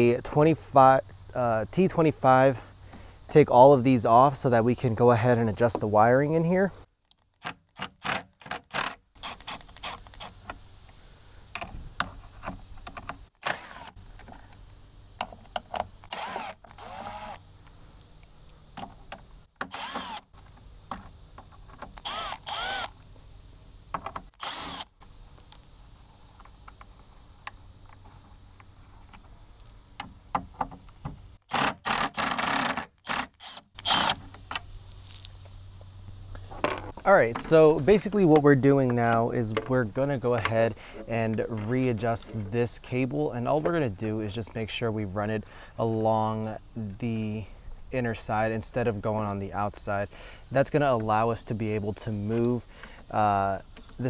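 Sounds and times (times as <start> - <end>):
high insect drone: 0.0 - 54.0
cordless drill bursts: 8.0 - 10.0, 13.4 - 14.0, 16.1 - 17.4, 19.7 - 20.3, 22.0 - 22.9, 24.4 - 24.9, 31.5 - 34.2.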